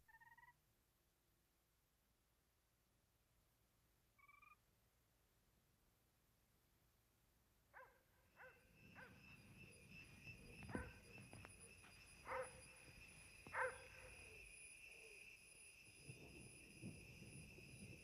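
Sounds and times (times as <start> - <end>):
short animal calls: 0.0 - 0.6, 4.2 - 4.6
high insect trill: 8.0 - 18.0.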